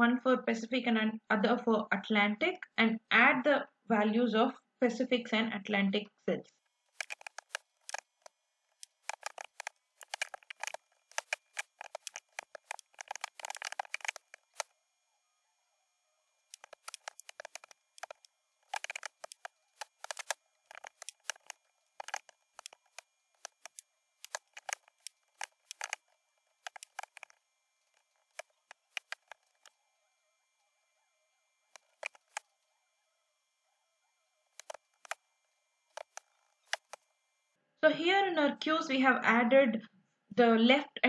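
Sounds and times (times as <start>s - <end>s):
keyboard typing clicks: 7.0s - 14.7s, 16.5s - 29.7s, 31.7s - 32.4s, 34.6s - 35.2s, 35.9s - 37.0s.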